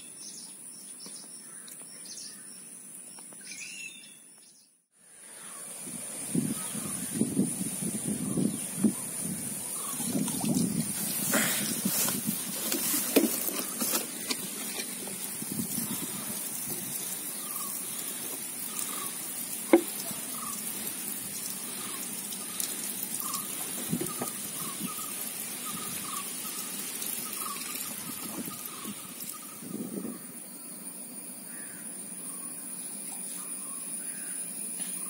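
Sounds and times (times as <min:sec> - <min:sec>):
water trickling and splashing: 0:05.8 - 0:30.1.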